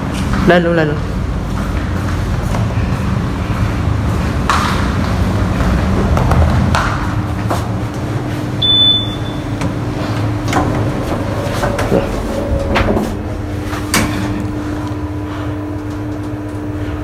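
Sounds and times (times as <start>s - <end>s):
lift hum: 1.4s - 17.0s
short high beep: 8.6s - 9.4s
sliding doors knocking: 9.7s - 14.4s.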